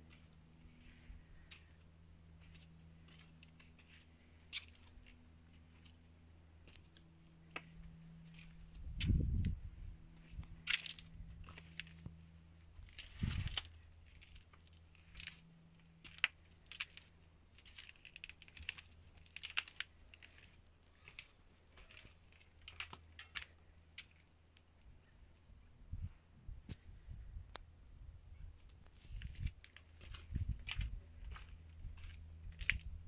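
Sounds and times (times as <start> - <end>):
faint low hum: 0.0 - 33.0
footsteps crunching on dirt: 28.9 - 33.0.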